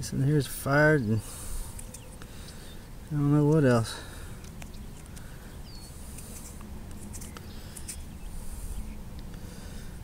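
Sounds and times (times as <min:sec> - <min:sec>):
fingers scratching soil: 0:04.5 - 0:08.6.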